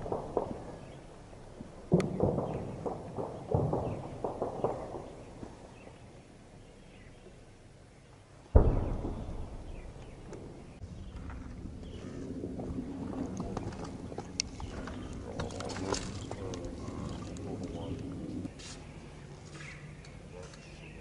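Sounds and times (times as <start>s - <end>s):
distant gunfire blasts echoing: 0.0s - 6.0s, 8.6s - 18.5s.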